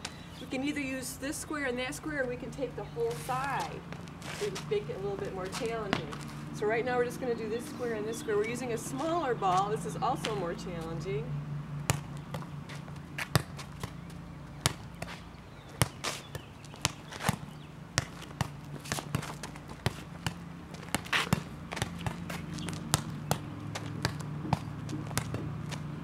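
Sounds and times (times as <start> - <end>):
sneakers shuffling on concrete: 1.5 - 11.2, 11.8 - 26.0
rubber ball bouncing on concrete: 11.8 - 25.9.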